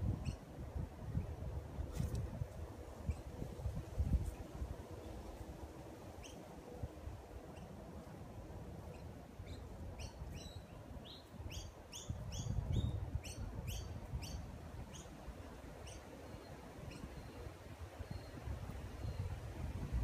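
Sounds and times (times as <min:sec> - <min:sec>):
small bird chirping: 0:08.8 - 0:15.2.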